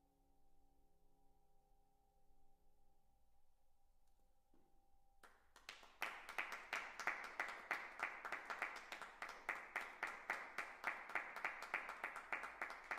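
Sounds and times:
audience applauding: 5.2s - 12.9s
hand claps: 5.2s - 12.9s.

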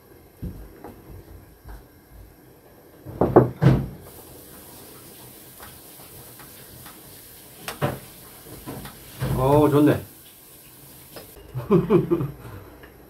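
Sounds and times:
faint steady hiss: 4.0s - 12.3s.

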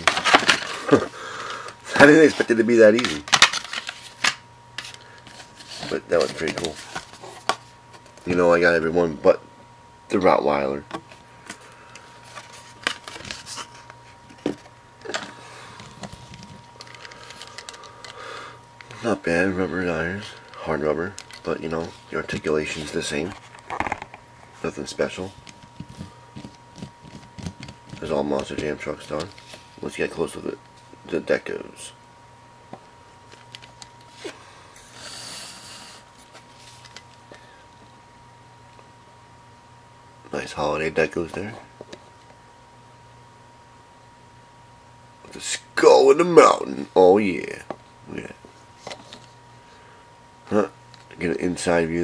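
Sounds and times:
toy and package handling: 0.0s - 1.1s, 1.9s - 7.6s, 14.4s - 18.2s, 20.3s - 24.1s
low steady hum: 0.0s - 52.0s
breath near microphone: 17.1s - 18.6s.

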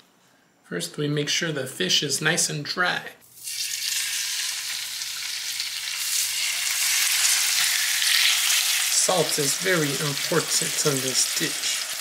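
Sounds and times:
fish sizzling in a frying pan: 3.4s - 12.0s.

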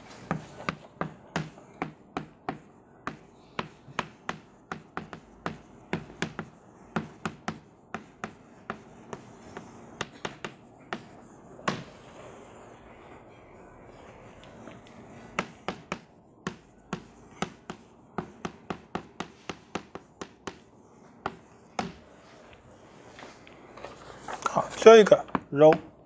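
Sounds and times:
chalk tapping on a blackboard: 0.0s - 12.2s, 14.4s - 22.2s.

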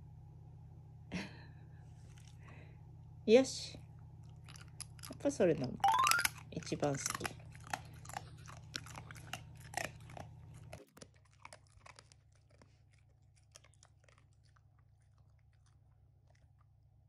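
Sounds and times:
dog chewing a treat: 4.2s - 17.0s.

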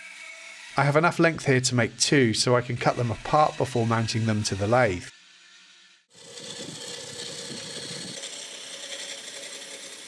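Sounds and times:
wood lathe running: 0.0s - 10.0s
gouge cutting wood: 0.8s - 10.0s.

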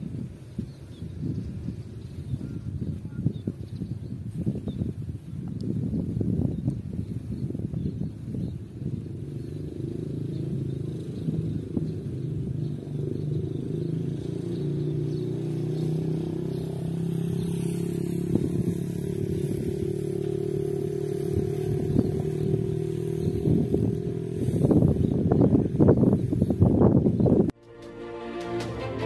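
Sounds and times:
small engine running: 8.7s - 26.7s
music: 27.6s - 29.0s.

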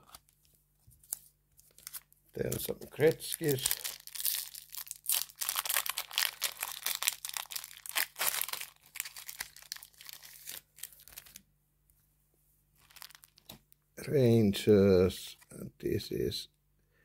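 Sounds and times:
wrapper tearing and crinkling: 1.0s - 11.4s, 12.8s - 13.6s.

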